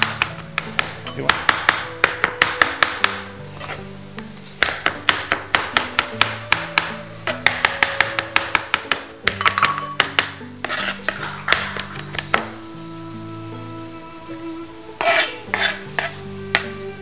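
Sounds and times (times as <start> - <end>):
knife chopping on plastic board: 0.0 - 3.3, 4.6 - 12.6
background music: 0.0 - 17.0.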